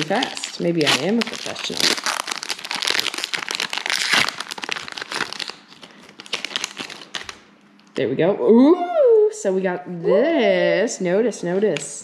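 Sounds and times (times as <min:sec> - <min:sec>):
foil wrapper crinkling: 0:00.0 - 0:07.5.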